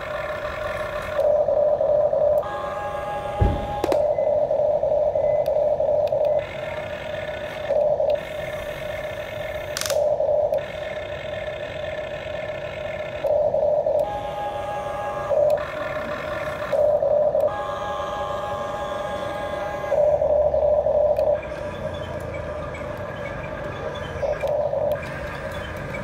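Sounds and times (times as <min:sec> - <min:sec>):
toy electric motors whining: 0:00.0 - 0:26.0
sharp click: 0:09.8 - 0:10.1.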